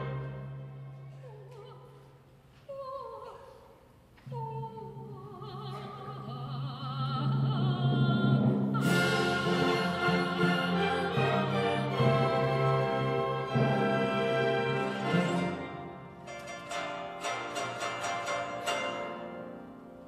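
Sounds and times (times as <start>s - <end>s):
string orchestra playing: 0.0s - 1.1s, 8.8s - 20.0s.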